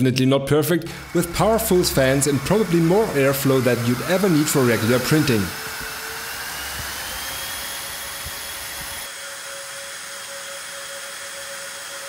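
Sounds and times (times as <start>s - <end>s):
fans rushing air with whine: 0.9s - 10.4s.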